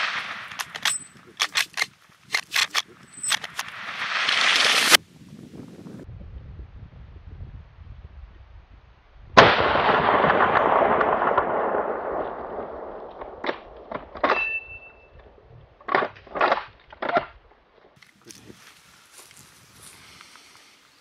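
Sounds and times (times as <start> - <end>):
rifle shot with echo: 9.4 - 14.8.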